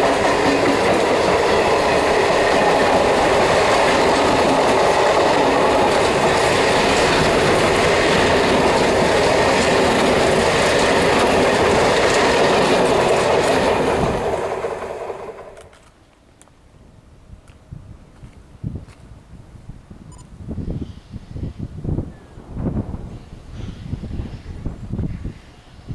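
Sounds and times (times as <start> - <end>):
train wheels on rails: 0.0 - 16.6.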